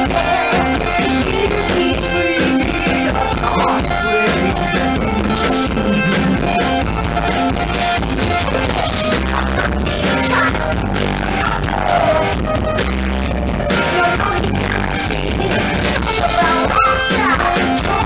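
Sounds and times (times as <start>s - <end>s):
woman singing: 0.0s - 6.7s, 13.8s - 18.0s
bass guitar: 0.0s - 18.0s
drum kit: 0.0s - 18.0s
electric guitar: 0.0s - 18.0s.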